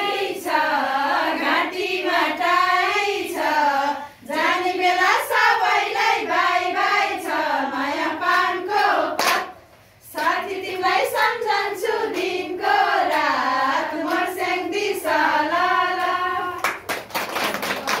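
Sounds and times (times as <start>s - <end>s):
women singing in unison: 0.0s - 16.9s
hands clapping: 9.2s - 9.5s, 14.0s - 14.3s, 16.6s - 18.0s.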